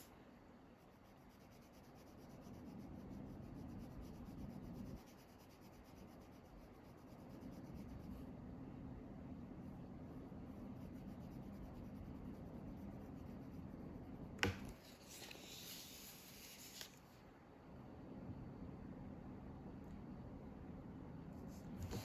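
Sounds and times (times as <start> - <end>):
pen scratching on paper: 0.8 - 8.2, 21.5 - 22.0.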